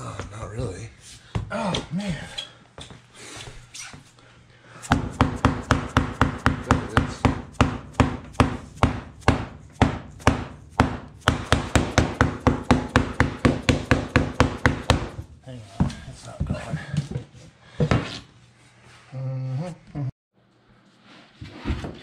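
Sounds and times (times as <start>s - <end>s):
rubber mallet tapping floor planks: 4.8s - 16.8s.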